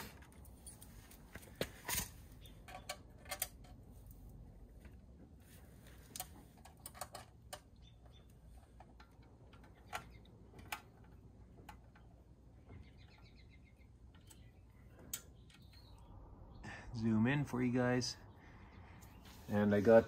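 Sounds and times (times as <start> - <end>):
allen key clicking on screws: 1.9 - 3.8, 6.1 - 8.0.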